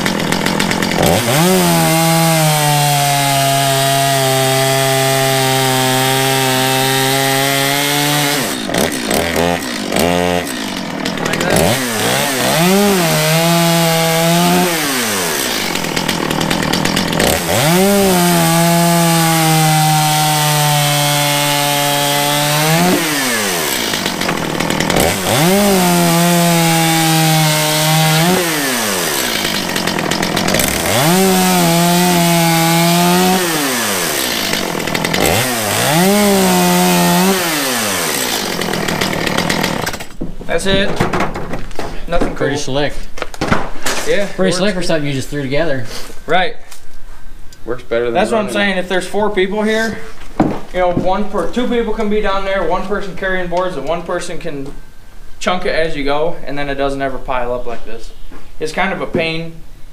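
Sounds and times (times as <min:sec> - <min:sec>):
chainsaw revving and cutting: 0:00.0 - 0:40.2.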